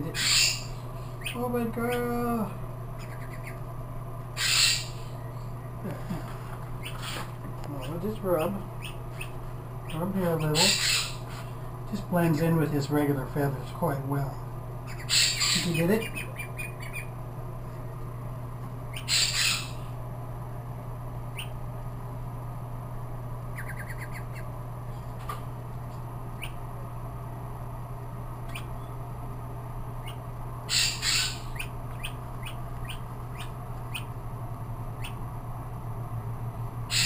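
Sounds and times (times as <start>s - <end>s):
duckling peeping and squawking: 0.0s - 3.7s, 4.3s - 11.6s, 14.8s - 17.2s, 18.9s - 20.0s, 21.3s - 21.6s, 23.5s - 24.6s, 26.3s - 26.7s, 28.4s - 29.0s, 30.0s - 34.2s, 34.9s - 35.3s
steady low hum: 0.0s - 37.0s.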